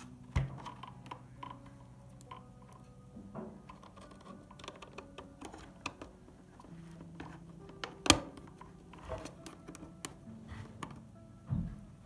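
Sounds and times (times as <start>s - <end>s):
plastic clicks and taps: 3.6s - 6.3s, 7.2s - 10.2s.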